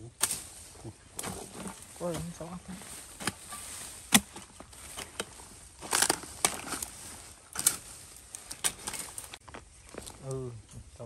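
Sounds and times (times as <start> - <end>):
soil crumbling and scattering: 0.0 - 10.4
digging tool chopping earth: 3.1 - 7.8.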